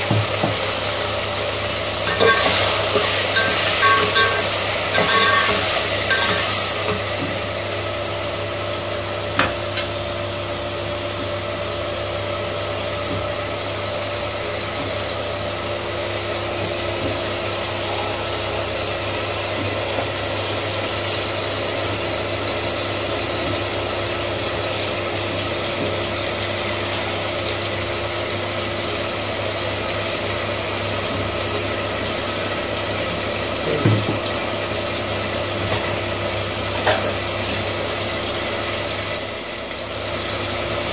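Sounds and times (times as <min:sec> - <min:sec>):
pot boiling and bubbling: 0:00.0 - 0:40.9.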